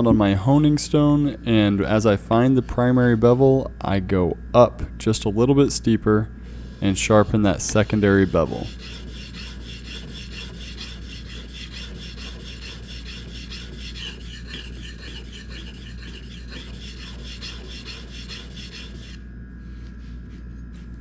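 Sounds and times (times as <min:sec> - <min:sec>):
blade scraping on honing stone: 0:07.6 - 0:19.2.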